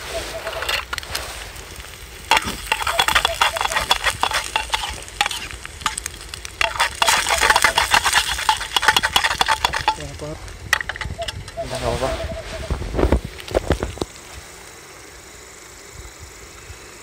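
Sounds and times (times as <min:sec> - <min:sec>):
egg sizzling: 0:00.0 - 0:11.7
metal spoon scraping pan: 0:02.3 - 0:10.1, 0:10.7 - 0:11.7.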